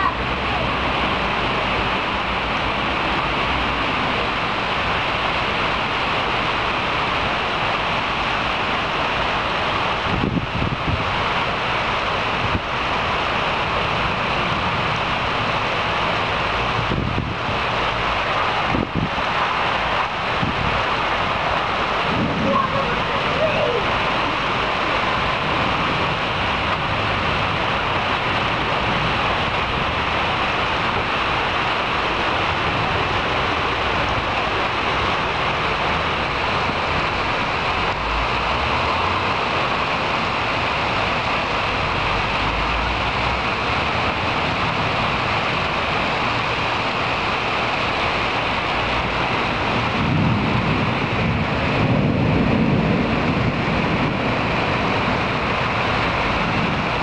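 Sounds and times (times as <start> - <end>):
heavy rain and wind: 0.0 - 57.0
low thunder rumble: 9.3 - 43.2, 48.7 - 57.0.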